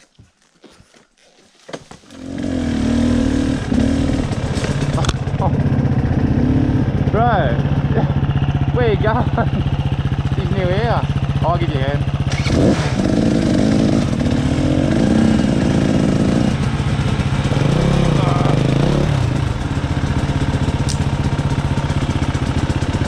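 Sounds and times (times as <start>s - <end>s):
dirt bike engines idling: 1.8s - 23.0s
dirt bike engine revving: 2.1s - 23.0s.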